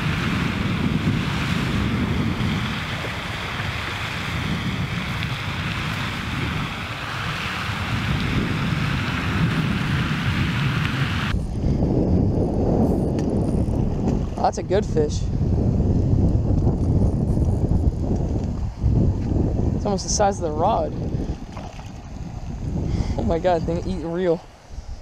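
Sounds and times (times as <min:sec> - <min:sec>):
fountain water spraying: 0:00.0 - 0:11.3
wind buffeting microphone: 0:00.0 - 0:25.0.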